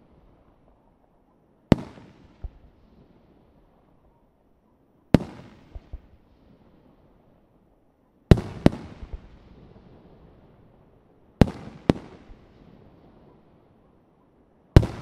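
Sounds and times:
sharp firework crack: 14.8s - 15.0s.

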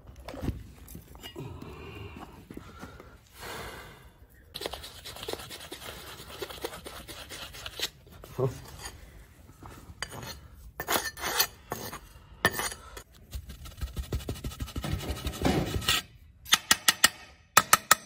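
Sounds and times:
metal scraper scraping sand: 14.8s - 16.1s.

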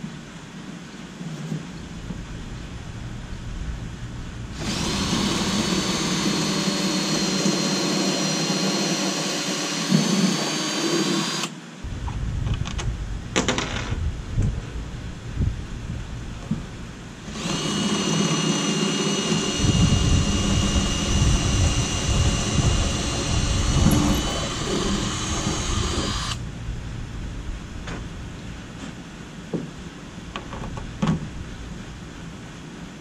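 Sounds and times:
cordless drill whining: 4.6s - 11.5s, 17.3s - 26.4s.

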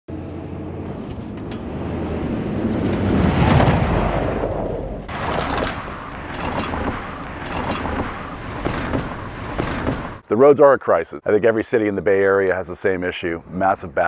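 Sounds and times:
vehicle passing: 0.1s - 10.2s
low traffic rumble: 0.1s - 14.0s.

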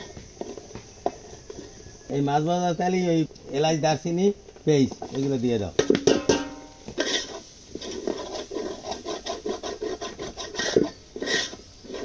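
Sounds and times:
metal spoon scraping a pot: 6.1s - 12.0s.

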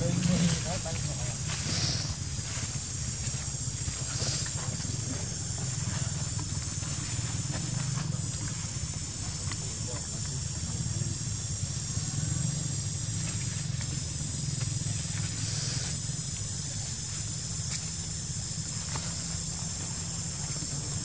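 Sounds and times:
high insect drone: 0.0s - 21.0s
monkeys scuffling in dry leaves: 0.2s - 5.0s.

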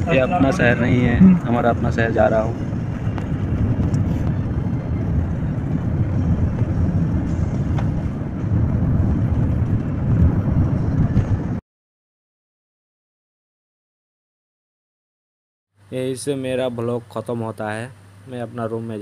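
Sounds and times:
road and engine rumble: 0.0s - 11.6s, 15.8s - 19.0s.

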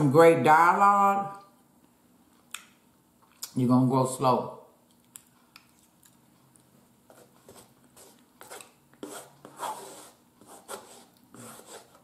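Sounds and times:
chewing and mouth smacks: 4.9s - 6.7s.

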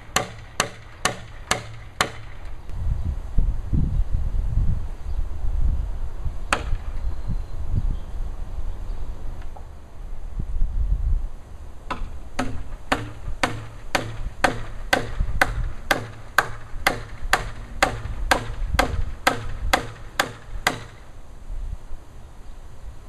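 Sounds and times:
hammer striking: 0.0s - 2.5s, 11.9s - 21.0s.

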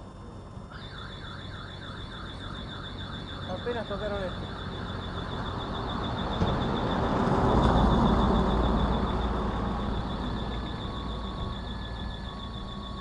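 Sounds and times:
vehicle passing: 2.6s - 12.9s.

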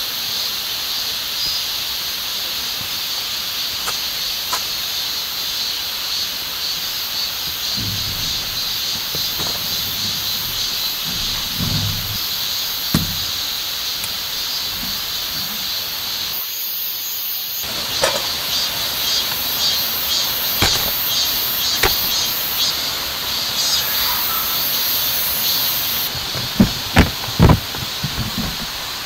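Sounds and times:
rain: 0.0s - 29.0s
running water: 6.1s - 16.4s
camp gear knocks: 6.8s - 16.2s, 20.6s - 22.4s, 26.1s - 29.0s.

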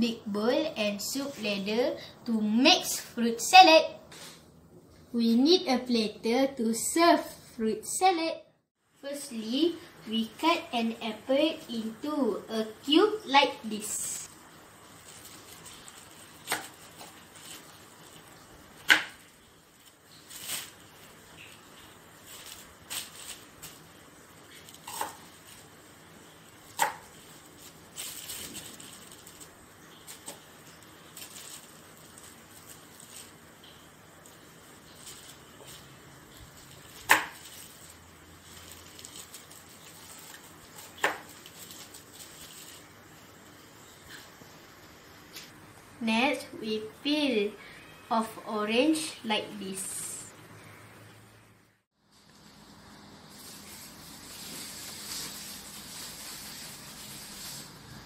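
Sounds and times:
knife cutting apple: 18.8s - 19.2s, 24.8s - 25.3s, 26.7s - 27.2s, 36.9s - 37.4s, 40.8s - 41.4s.

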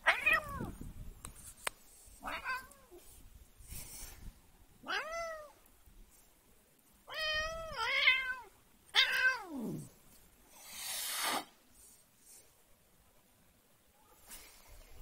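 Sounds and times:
cat meowing: 0.0s - 0.8s, 2.2s - 3.0s, 4.8s - 5.6s, 7.1s - 9.9s
cat hissing: 10.5s - 11.6s.

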